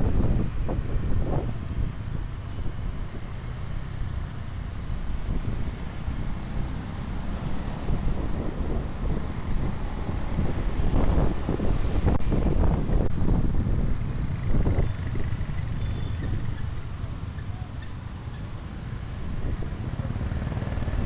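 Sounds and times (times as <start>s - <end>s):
wind buffeting microphone: 0.0s - 3.3s, 7.1s - 15.5s.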